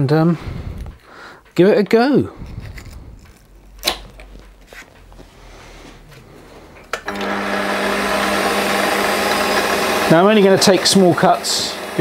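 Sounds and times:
metal lathe motor running: 7.0s - 12.0s.

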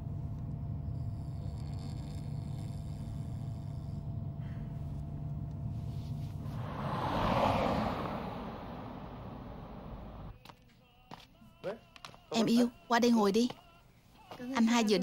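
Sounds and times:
car engine and road rumble: 5.5s - 10.3s
rush of passing noise: 6.4s - 10.3s.

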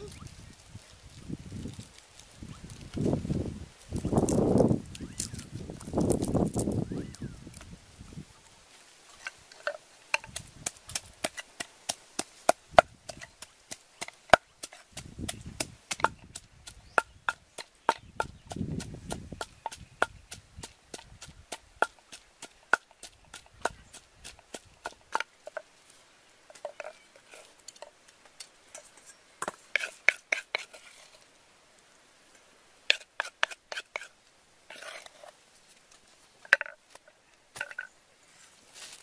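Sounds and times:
pestle pounding in wooden mortar: 10.2s - 25.3s.

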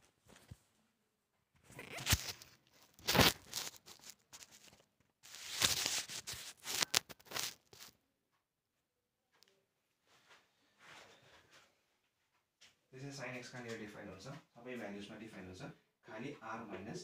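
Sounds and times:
phone handling rustling and scraping: 1.8s - 7.9s.

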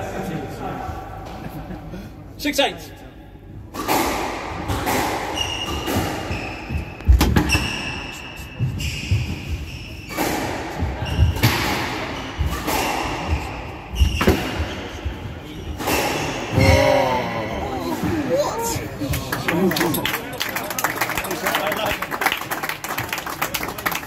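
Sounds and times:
shoes squeaking on wooden floor: 5.4s - 10.2s.

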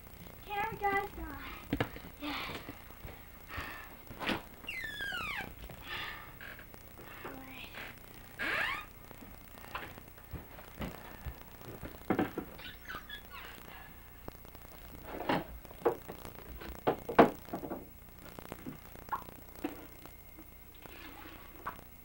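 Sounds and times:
thumps and knocks: 10.2s - 12.6s, 15.2s - 17.9s.

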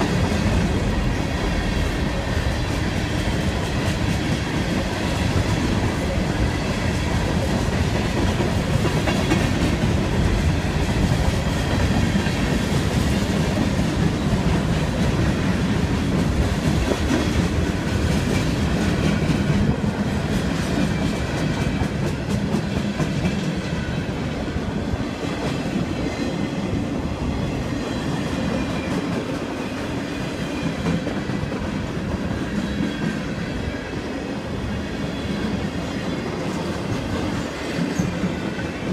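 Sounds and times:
freight train cars rolling past: 0.0s - 38.9s.

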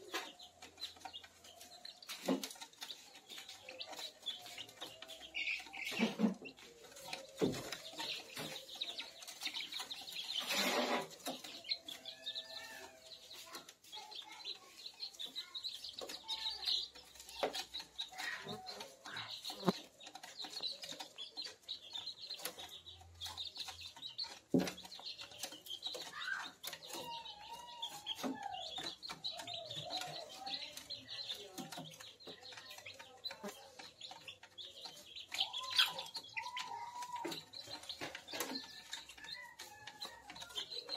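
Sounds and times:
chicks pecking feed clicks: 0.0s - 40.9s
chicks peeping: 0.0s - 40.9s.

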